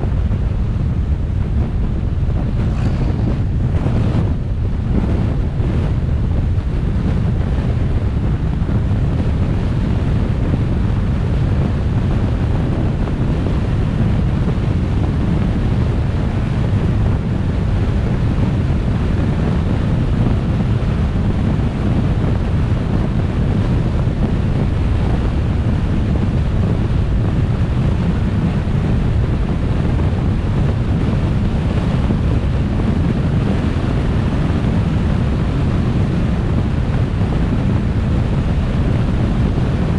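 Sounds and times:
road noise: 0.0s - 21.6s
wind buffeting microphone: 0.0s - 39.9s.

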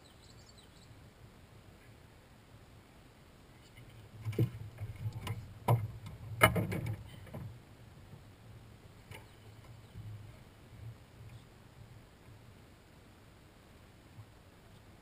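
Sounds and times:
knocks and rattles on boat deck: 4.2s - 7.6s.

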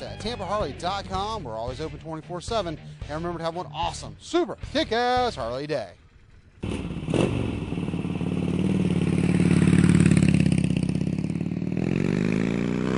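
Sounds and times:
motorcycle engine revving: 6.0s - 12.9s.

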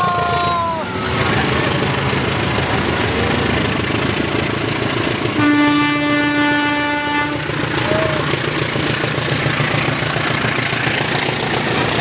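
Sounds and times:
diesel locomotive engine running hard: 0.0s - 12.0s
train horn blast: 5.4s - 7.6s.

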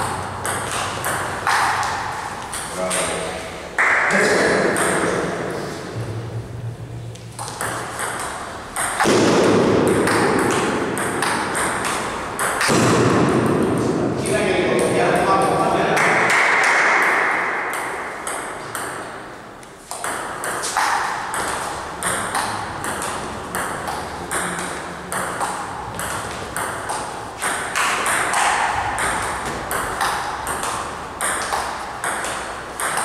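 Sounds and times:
table tennis ball clicking: 7.3s - 9.2s, 9.9s - 12.7s, 19.6s - 33.0s.

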